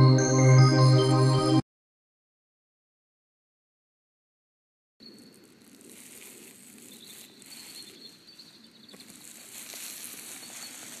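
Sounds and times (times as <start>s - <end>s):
faint outdoor hiss: 5.0s - 11.0s.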